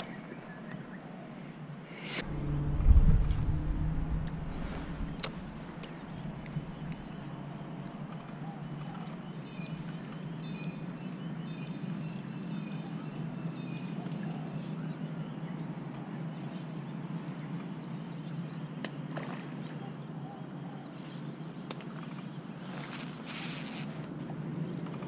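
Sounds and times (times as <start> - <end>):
steady low hum: 1.7 - 9.5.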